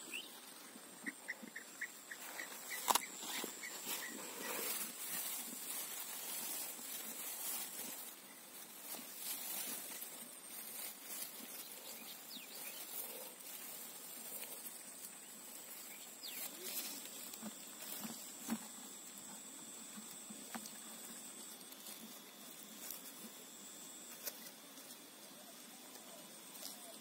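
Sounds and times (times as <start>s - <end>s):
grass rustling and crackling: 0.0s - 27.0s
outdoor background hiss: 0.0s - 27.0s
hand picking at damp soil: 2.0s - 18.8s.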